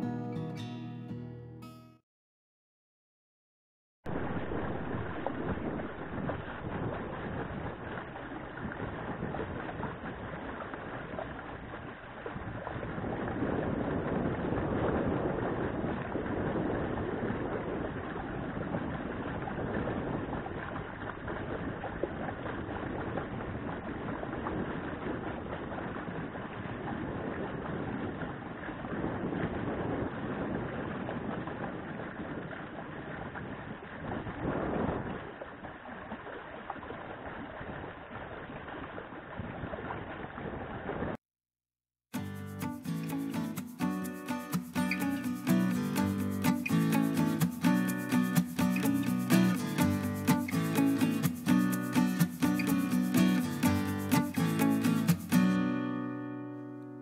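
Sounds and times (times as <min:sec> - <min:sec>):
wind rushing over microphone: 0:04.1 - 0:35.4
water lapping at boat hull: 0:04.4 - 0:41.2.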